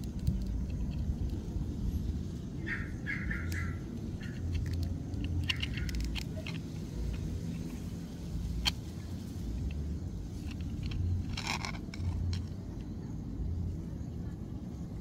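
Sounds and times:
low outdoor rumble: 0.0 - 15.0
plastic action figure clicks: 3.4 - 7.8.

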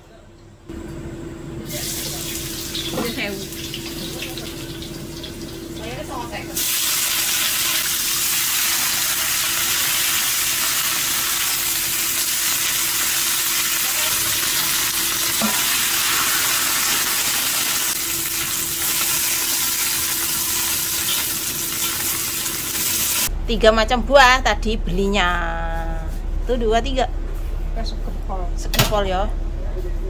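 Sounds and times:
vegetables sizzling in hot oil: 1.7 - 23.3.

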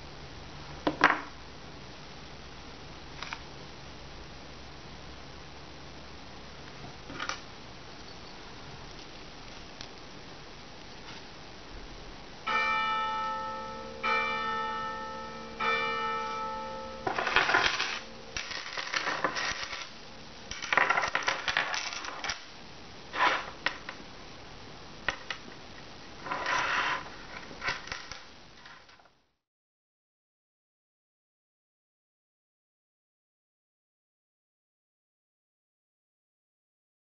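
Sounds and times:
bell-like metallic rings: 12.5 - 18.7
beads clinking and jingling: 17.0 - 22.4.

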